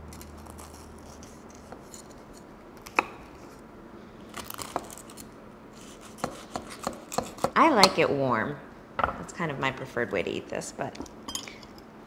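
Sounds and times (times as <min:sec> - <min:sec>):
knife cutting crisp pastry: 0:04.4 - 0:07.6.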